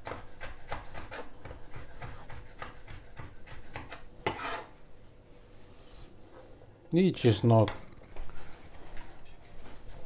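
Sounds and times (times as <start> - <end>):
knife chopping on wooden board: 0.0 - 4.7
knife scraping across board: 3.5 - 4.8.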